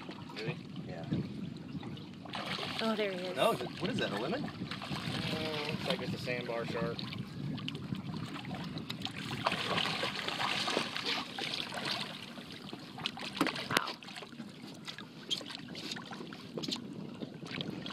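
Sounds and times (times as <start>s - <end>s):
fish thrashing and splashing water: 2.2s - 6.1s, 7.7s - 16.3s.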